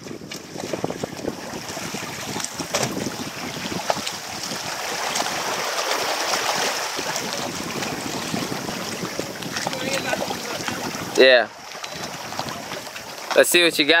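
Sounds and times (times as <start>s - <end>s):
water lapping against boat hull: 0.0s - 14.0s
wind buffeting microphone: 0.0s - 14.0s.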